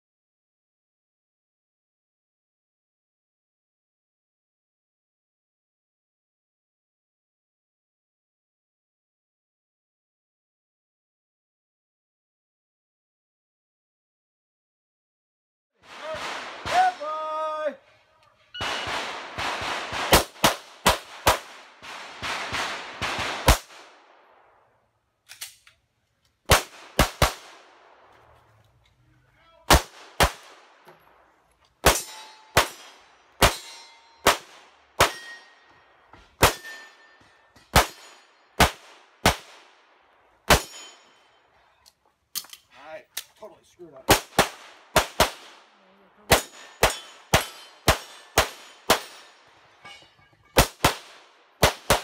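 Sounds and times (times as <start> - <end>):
rapid pistol shots: 18.6 - 24.0, 26.5 - 27.9, 29.7 - 30.8, 31.8 - 33.6, 34.2 - 35.4, 37.7 - 39.8, 44.1 - 45.7, 46.3 - 49.3, 50.6 - 52.0.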